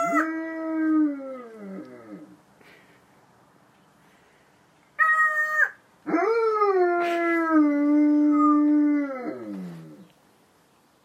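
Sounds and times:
dog howling: 0.0s - 2.4s
parrot call: 5.0s - 5.8s.

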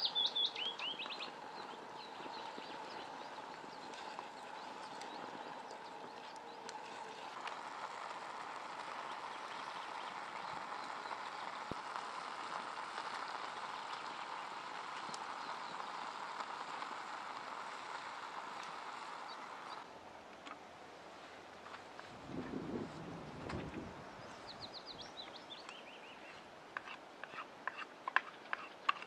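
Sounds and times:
soup boiling with bubbling hiss: 0.0s - 29.0s
faint ticks: 2.1s - 20.6s.

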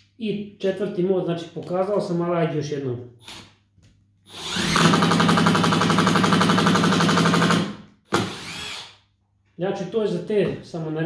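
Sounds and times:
impact driver hammering: 4.6s - 8.9s.

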